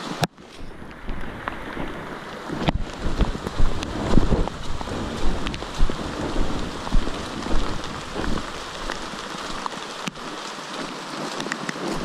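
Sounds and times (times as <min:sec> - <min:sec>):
light rain on foliage: 0:00.0 - 0:12.0
wind rumble on microphone: 0:00.0 - 0:12.0.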